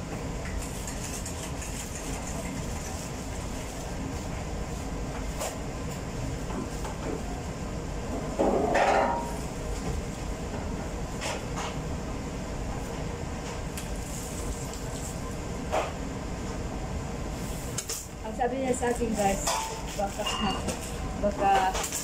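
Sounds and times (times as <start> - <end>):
metal baking trays clattering: 19.2 - 20.7.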